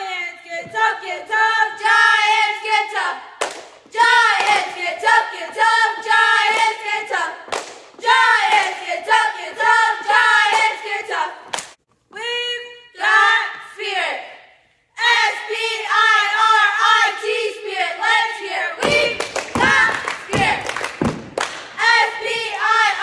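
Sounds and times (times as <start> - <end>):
girls chanting a cheer: 0.0 - 23.0
sharp hand claps: 3.4 - 3.8, 7.5 - 7.9, 11.5 - 11.8, 18.8 - 21.8.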